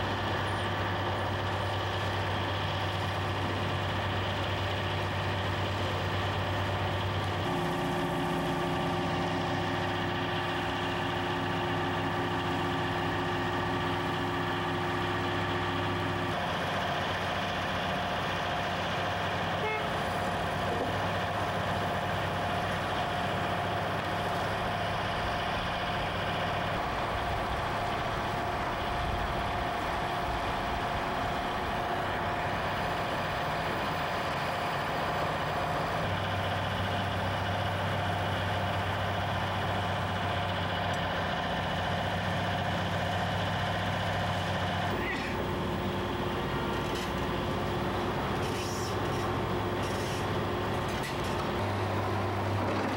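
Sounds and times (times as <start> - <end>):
construction machinery engines droning: 0.0 - 52.9.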